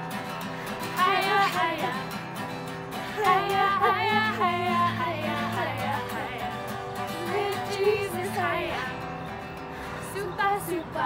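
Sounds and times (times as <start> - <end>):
strummed acoustic guitar: 0.0 - 11.0
several voices singing: 0.8 - 2.3, 2.9 - 9.3.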